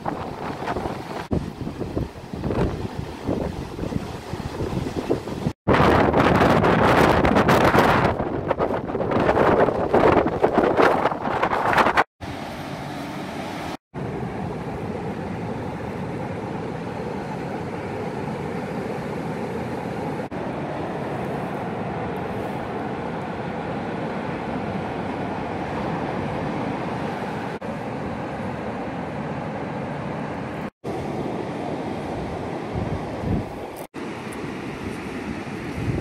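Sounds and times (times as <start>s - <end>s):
wind blowing across microphone: 0.0s - 12.1s, 30.6s - 36.0s
surf rushing on beach: 0.0s - 36.0s.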